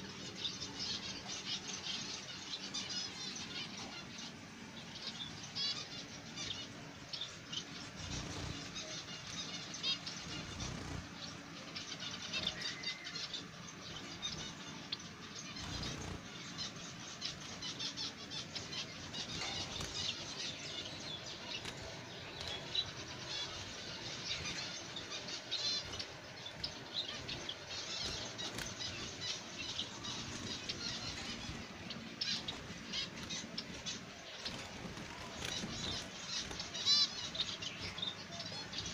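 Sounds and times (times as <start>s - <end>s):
finches chirping: 0.0s - 38.9s
wings fluttering: 7.9s - 9.0s, 10.2s - 11.3s, 15.5s - 16.4s, 21.2s - 38.2s.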